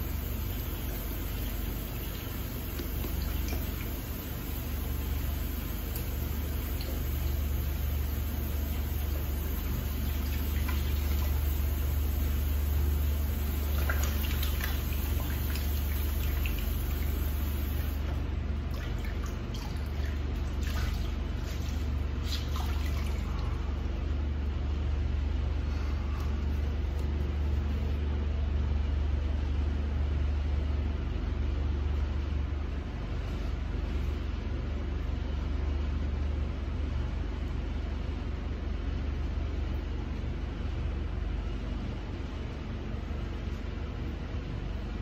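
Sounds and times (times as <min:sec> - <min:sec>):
steady low hum: 0:00.0 - 0:45.0
light splashes: 0:08.7 - 0:11.7, 0:13.4 - 0:23.8.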